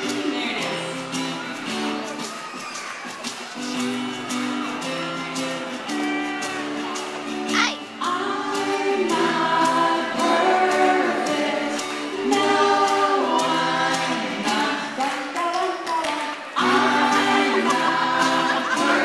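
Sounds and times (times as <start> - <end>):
voices singing in chorus: 0.0 - 1.5, 7.9 - 19.0
strummed acoustic guitar: 0.0 - 15.4, 16.5 - 19.0.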